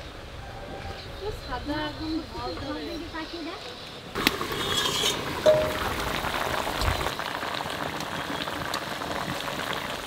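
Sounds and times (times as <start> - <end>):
curry bubbling and popping: 4.2 - 10.0.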